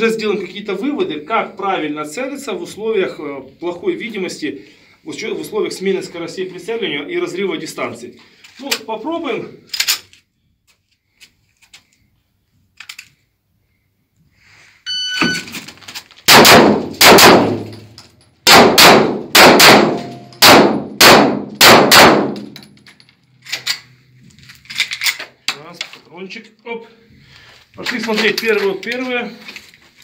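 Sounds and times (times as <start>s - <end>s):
short beep: 14.8s - 15.6s
pistol shots ringing in room: 16.3s - 22.8s.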